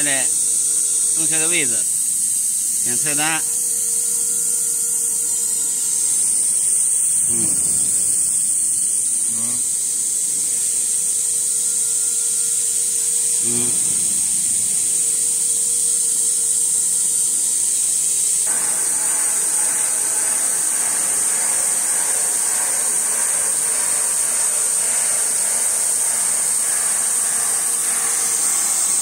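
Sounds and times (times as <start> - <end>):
high-pitched machinery hiss: 0.0 - 29.0
broad rushing noise: 18.5 - 29.0.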